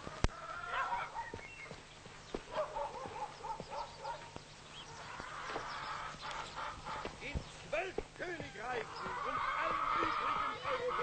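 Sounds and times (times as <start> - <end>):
dog yelping: 0.6 - 1.4, 2.5 - 4.3, 9.0 - 11.0.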